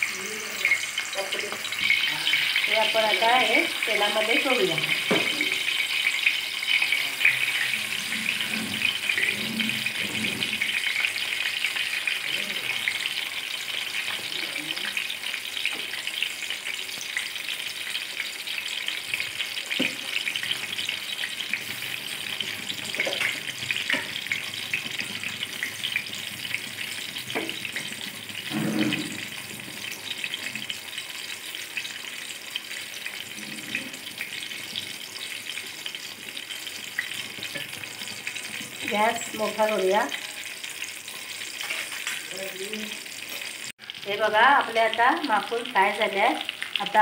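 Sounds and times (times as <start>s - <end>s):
squid sizzling in hot oil: 0.0s - 47.0s
metal spoon scraping pan: 6.8s - 11.3s, 20.1s - 30.7s, 41.1s - 42.3s.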